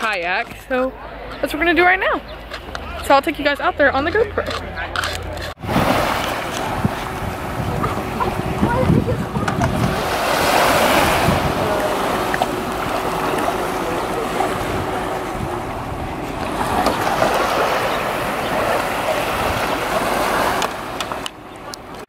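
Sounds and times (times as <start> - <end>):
wind on microphone: 5.6 - 21.2
waves washing onto beach: 5.6 - 22.0.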